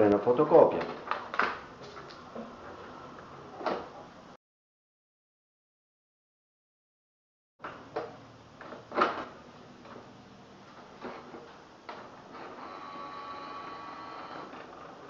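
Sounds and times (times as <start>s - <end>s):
motor whine: 12.3s - 15.0s.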